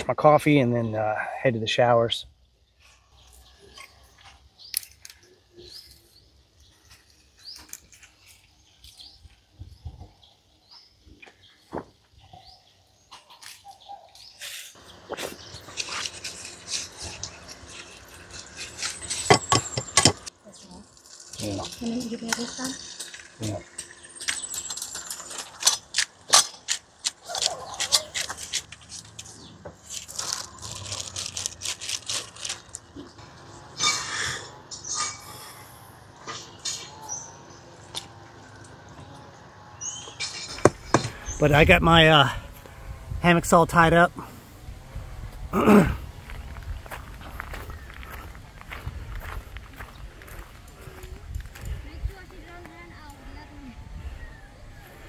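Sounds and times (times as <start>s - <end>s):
birds chirping: 0.0s - 55.0s
plastic packaging crinkling: 27.3s - 33.0s.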